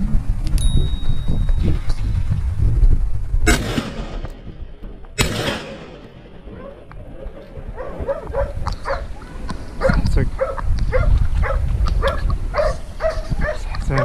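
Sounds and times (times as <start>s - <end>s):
shotgun shot: 3.4s - 6.6s
dogs barking: 6.5s - 14.0s.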